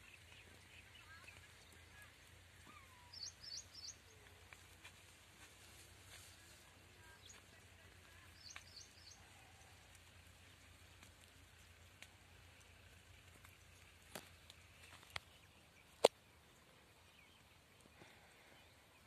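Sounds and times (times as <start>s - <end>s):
bird chirps: 0.0s - 4.2s, 8.2s - 9.6s.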